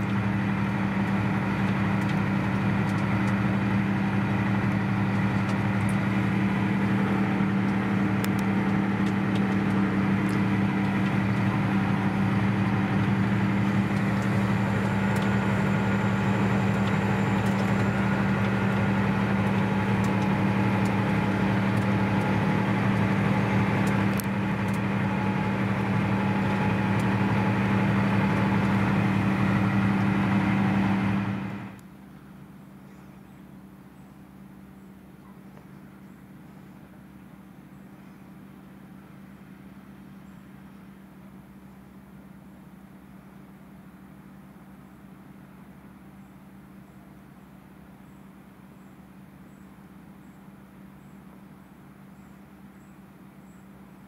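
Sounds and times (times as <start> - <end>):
tractor diesel engine running: 0.0 - 32.7.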